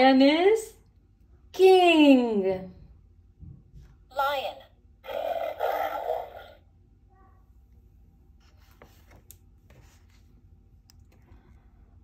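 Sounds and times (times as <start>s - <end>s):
low room hum: 0.0s - 12.0s
book page turning: 8.4s - 10.5s.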